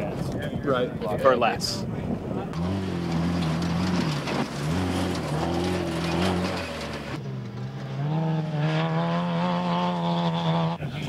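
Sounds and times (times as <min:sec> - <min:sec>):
dune buggy engines revving: 0:02.0 - 0:11.0.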